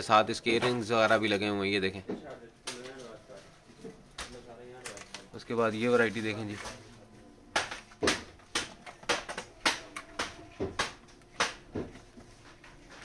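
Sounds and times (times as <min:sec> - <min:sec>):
footsteps: 0:09.5 - 0:13.0.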